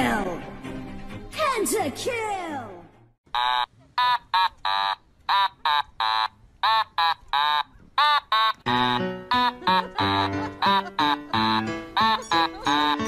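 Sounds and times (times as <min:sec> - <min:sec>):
husky high-pitched calls: 0:03.4 - 0:13.0.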